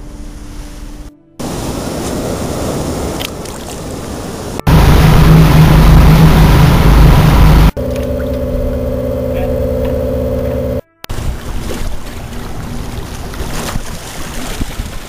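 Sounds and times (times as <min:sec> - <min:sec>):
water rushing: 0:00.1 - 0:15.0
rushing wind: 0:01.4 - 0:07.8
engine drone: 0:04.6 - 0:13.7.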